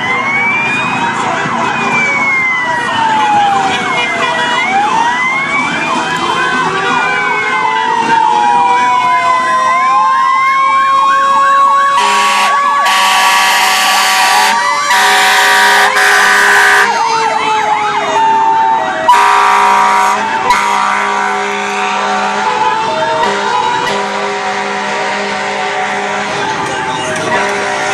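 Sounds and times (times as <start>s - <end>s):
emergency sirens wailing: 0.0s - 27.9s
air horn blasts: 12.0s - 17.0s, 19.1s - 26.6s, 27.2s - 27.9s.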